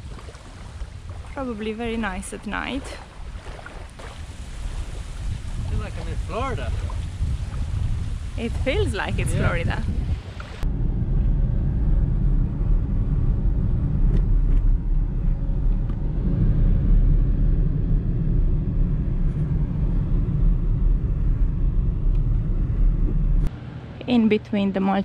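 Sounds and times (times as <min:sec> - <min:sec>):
car engine and tyres rumbling: 0:06.9 - 0:24.0.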